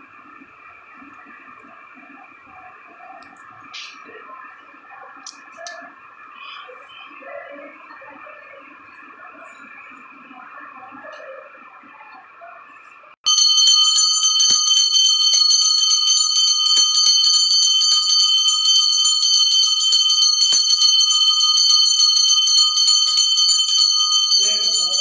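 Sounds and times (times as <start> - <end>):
temple bell ringing: 13.3 - 25.0.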